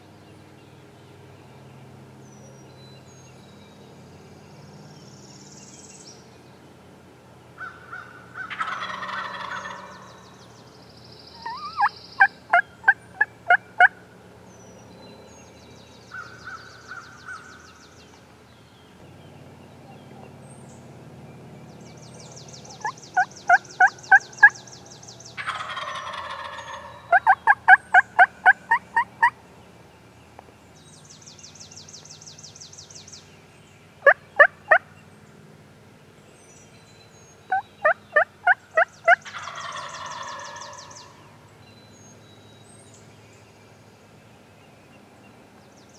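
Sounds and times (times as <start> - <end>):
small birds trilling: 7.6 - 35.4, 36.2 - 45.9
turkey gobbling: 8.4 - 10.2, 11.4 - 14.0, 22.8 - 24.6, 25.4 - 29.4, 37.5 - 41.2
sharp turkey call notes: 11.4 - 13.9, 37.5 - 41.2.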